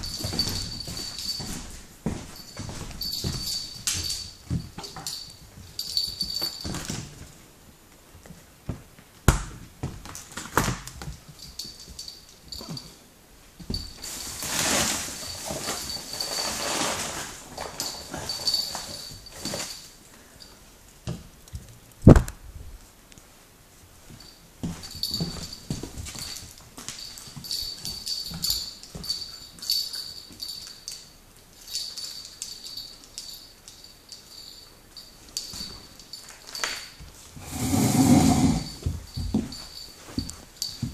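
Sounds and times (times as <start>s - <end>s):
collar jingling: 0.0s - 7.3s, 10.5s - 20.6s, 24.0s - 40.9s
rustling: 0.0s - 9.1s, 9.9s - 40.9s
puppy paws tapping on wood: 0.0s - 12.9s, 38.7s - 40.9s
dog claws clicking on floor: 8.2s - 12.9s, 24.6s - 37.3s.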